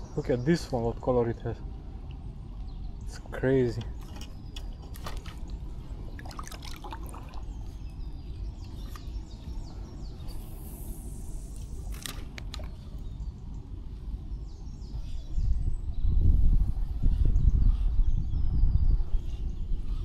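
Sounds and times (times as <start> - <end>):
creek water running: 4.0 - 7.9.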